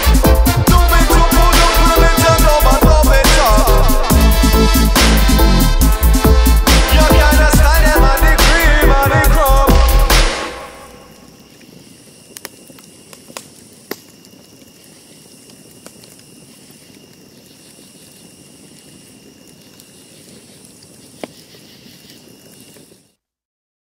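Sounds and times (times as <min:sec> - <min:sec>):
faint steady hiss: 0:10.4 - 0:23.2
clicks and pops: 0:12.3 - 0:14.4.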